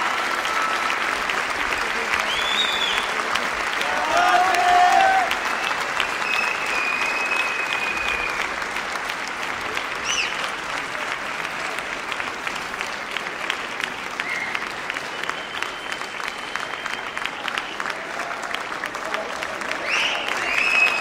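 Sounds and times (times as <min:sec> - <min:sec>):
audience applauding: 0:00.0 - 0:21.0
high whistles: 0:02.3 - 0:03.1, 0:05.5 - 0:08.4, 0:15.2 - 0:17.8, 0:19.8 - 0:21.0.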